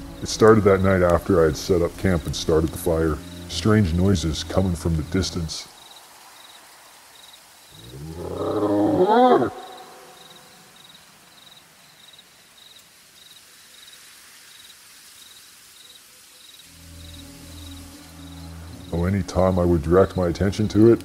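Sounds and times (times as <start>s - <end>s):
faint cricket chirps: 0.0s - 21.0s
beast-like roar: 7.8s - 10.2s.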